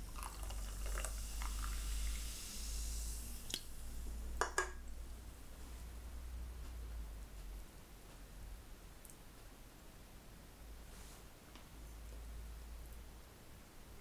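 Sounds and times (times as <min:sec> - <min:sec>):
soft hiss with faint ticks: 0:00.0 - 0:14.0
cup clinking on plate: 0:04.4 - 0:04.8.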